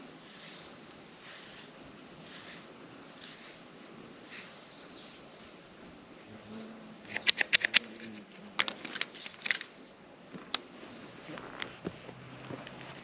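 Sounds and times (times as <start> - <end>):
brush clicks and taps: 7.1 - 9.8.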